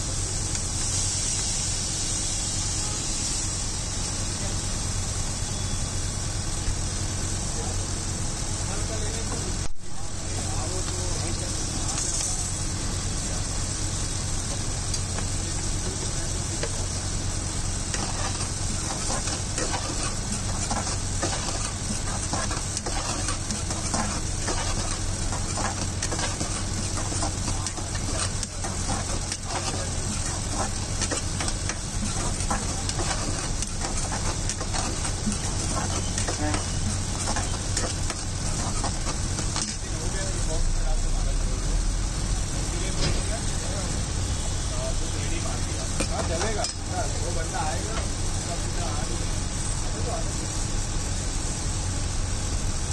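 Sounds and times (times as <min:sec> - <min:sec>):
frying sizzle: 0:00.0 - 0:52.9
metal spoon scraping a wok: 0:17.8 - 0:39.8.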